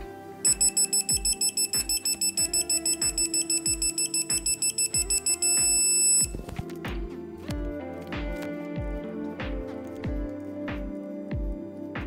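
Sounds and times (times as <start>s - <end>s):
background music: 0.0s - 12.0s
rapid high-pitched electronic beeping: 0.5s - 6.4s.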